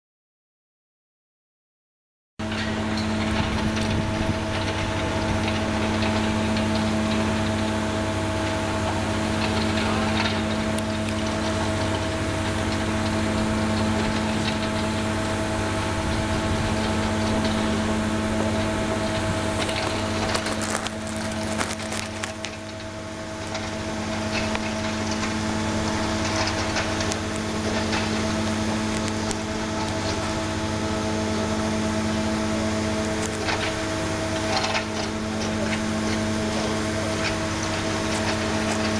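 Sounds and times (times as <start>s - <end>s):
diesel engine running: 2.4s - 38.9s
milling head grinding concrete: 8.5s - 30.8s.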